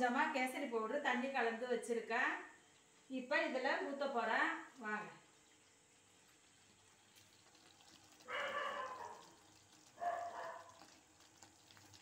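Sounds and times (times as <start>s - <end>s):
dog barking: 8.2s - 9.3s, 10.0s - 10.8s.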